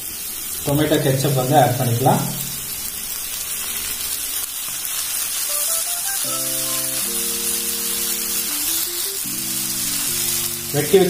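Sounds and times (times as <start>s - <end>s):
stir-fry sizzling in a pan: 0.0s - 11.0s
soft background music: 5.5s - 11.0s.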